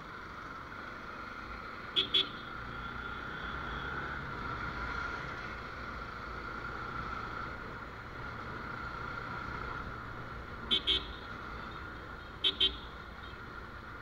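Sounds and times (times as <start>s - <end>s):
vehicle horn toots: 10.7s - 11.3s.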